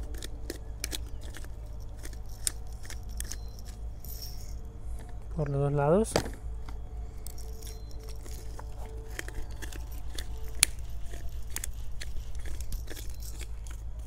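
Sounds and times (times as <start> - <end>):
pepper grinder crunching clicks: 0.0 - 4.4, 7.2 - 14.0.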